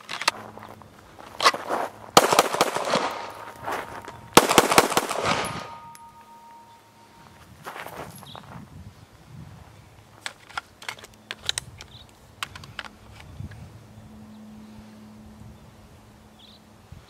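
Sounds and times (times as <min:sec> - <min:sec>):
pistol shots with echo: 0:02.2 - 0:03.6, 0:04.3 - 0:06.6.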